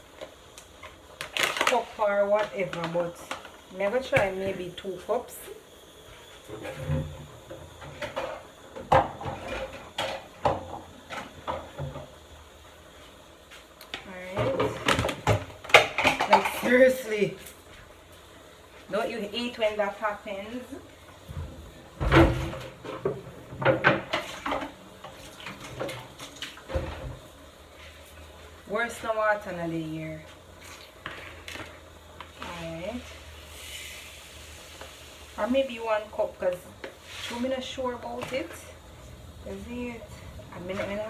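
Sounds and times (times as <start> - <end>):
kitchenware knocking and clattering: 22.0 - 24.8.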